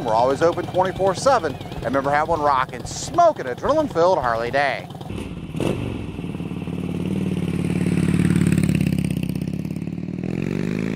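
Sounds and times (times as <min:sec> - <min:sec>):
motorcycle engine running: 0:00.0 - 0:10.9.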